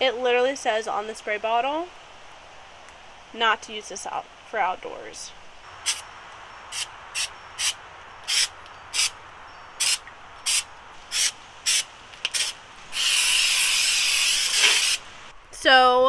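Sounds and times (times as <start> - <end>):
aerosol spray hissing: 5.8 - 6.1, 6.7 - 9.1, 9.8 - 15.2.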